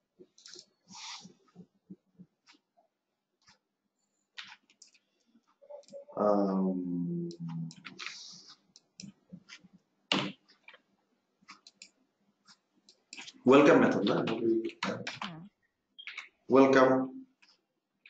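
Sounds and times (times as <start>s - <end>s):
person humming: 5.7s - 7.8s
keyboard typing: 7.3s - 10.8s, 11.4s - 12.0s, 12.9s - 16.4s.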